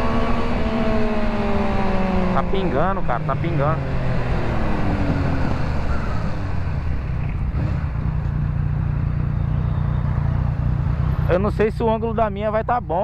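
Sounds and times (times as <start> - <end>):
motorcycle engine running: 0.0 - 13.0
wind rush: 3.7 - 7.7.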